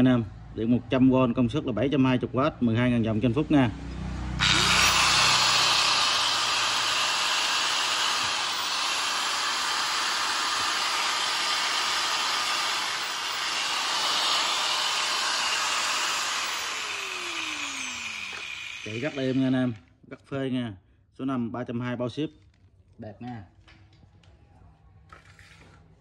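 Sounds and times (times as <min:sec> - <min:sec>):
angle grinder motor whine: 0:04.4 - 0:19.8.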